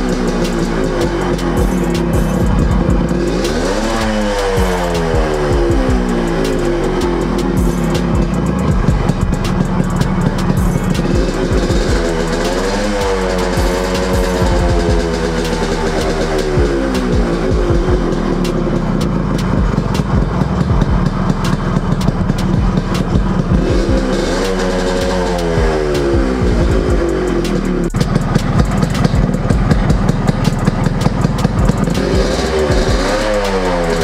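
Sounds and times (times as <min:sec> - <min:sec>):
two-stroke motorcycle engine revving: 0:00.0 - 0:34.0.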